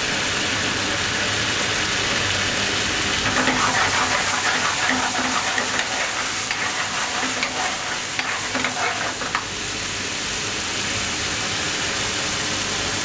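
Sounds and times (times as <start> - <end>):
food sizzling in a hot pan: 0.0 - 13.0
utensil clacking against pan: 3.2 - 9.5.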